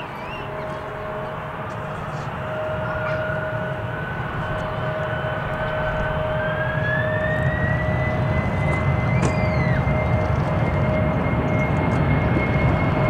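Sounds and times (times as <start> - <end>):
jet engines roaring: 0.0 - 13.0.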